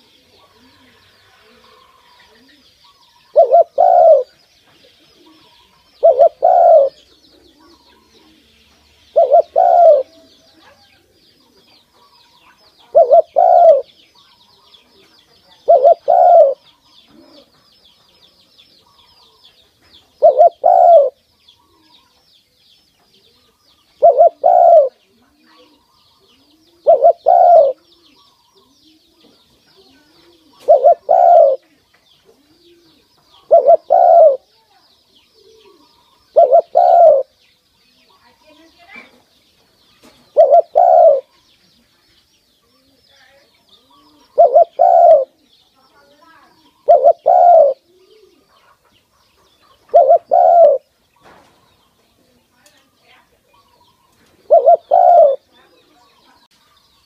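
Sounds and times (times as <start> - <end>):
dove cooing: 0.0 - 14.0, 14.6 - 17.6, 20.1 - 22.1, 23.2 - 37.4, 40.2 - 41.4, 43.7 - 51.4, 53.5 - 56.3.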